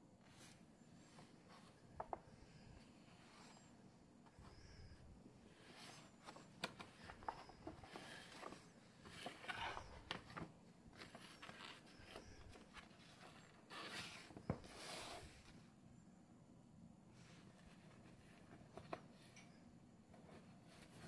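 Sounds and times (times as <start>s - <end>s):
paper rustling: 5.6s - 15.6s
paper sliding swishes: 11.0s - 15.6s.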